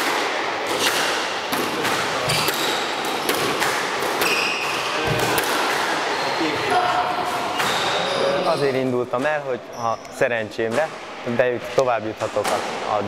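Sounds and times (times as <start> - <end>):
shoes squeaking on court floor: 2.2 - 3.4, 4.2 - 5.4, 6.0 - 10.2.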